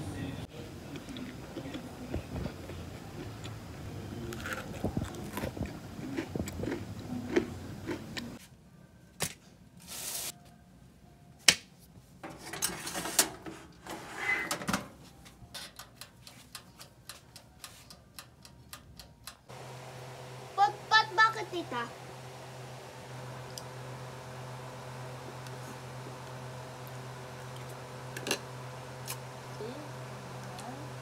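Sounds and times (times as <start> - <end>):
cookie crunching: 4.2 - 8.3.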